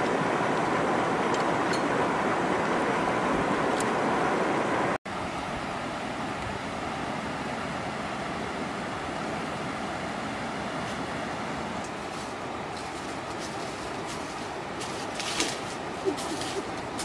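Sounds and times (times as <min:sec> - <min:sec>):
river water flowing: 0:00.0 - 0:17.0.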